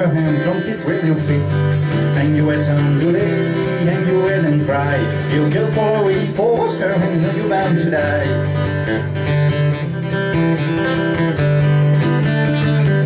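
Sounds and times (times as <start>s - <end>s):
acoustic guitar: 0.0s - 13.0s
man singing folk song: 0.0s - 13.0s.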